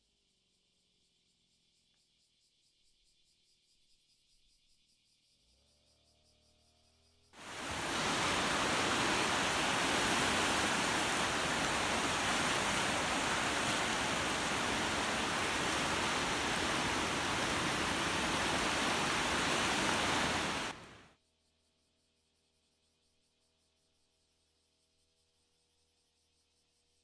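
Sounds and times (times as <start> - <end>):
rush of water: 7.4 - 21.0.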